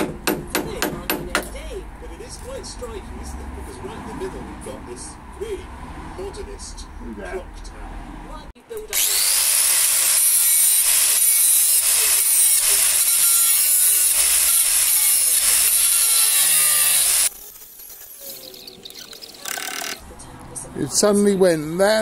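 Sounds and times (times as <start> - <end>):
angle grinder grinding steel: 8.8 - 20.0.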